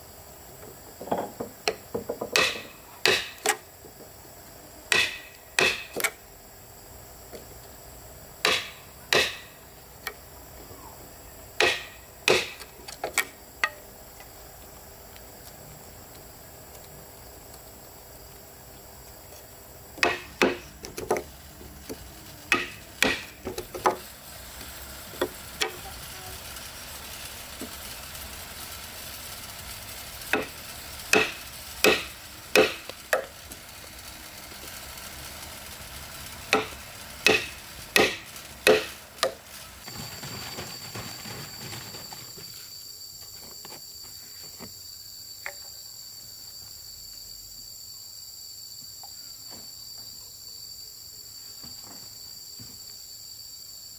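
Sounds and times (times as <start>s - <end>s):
high insect drone: 0.0s - 53.9s
sharp knocks: 1.0s - 3.6s, 8.4s - 9.5s, 11.6s - 12.6s, 36.5s - 39.4s.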